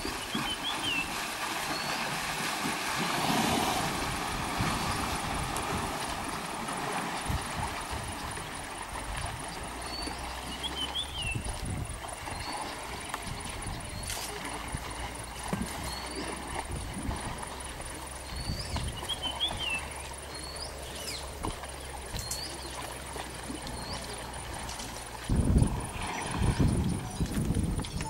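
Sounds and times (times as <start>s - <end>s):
elephants splashing through water: 0.0s - 28.0s
low steady rumble: 0.0s - 28.0s
bird chirps: 9.8s - 11.5s, 18.3s - 21.3s.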